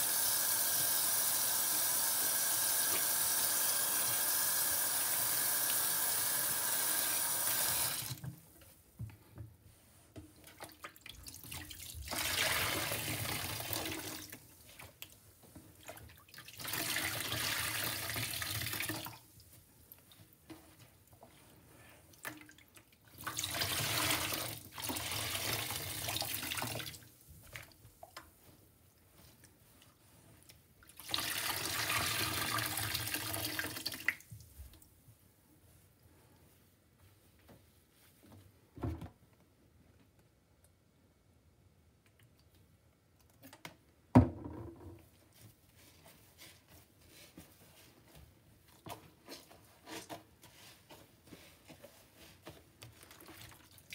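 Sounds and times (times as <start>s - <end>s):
sponge squishing: 9.6s - 32.9s, 45.1s - 53.9s.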